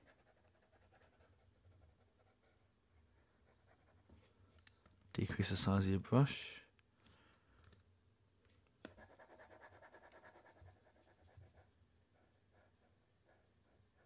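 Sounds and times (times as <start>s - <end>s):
faint rapid scratching: 8.8s - 14.0s.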